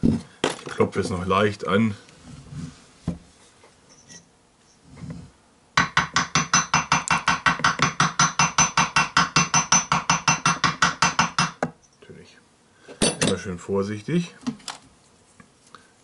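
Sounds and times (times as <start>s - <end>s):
hammer tapping on metal: 5.8s - 11.8s.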